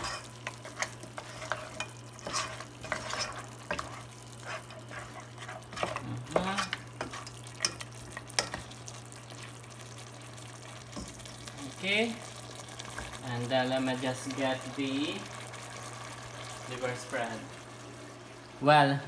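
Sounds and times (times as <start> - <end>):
wooden spatula scraping a pot: 0.0 - 9.6
meat and sauce frying: 0.0 - 19.0.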